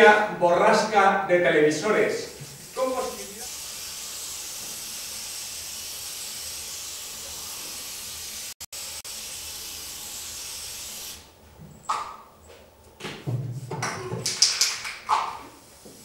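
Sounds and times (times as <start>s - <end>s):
television static hiss: 0.0s - 4.2s.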